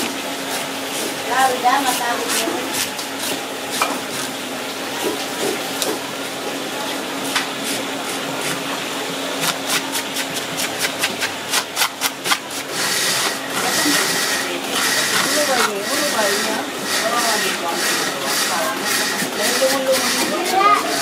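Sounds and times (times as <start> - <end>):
fish scaler scraping scales: 7.3 - 21.0.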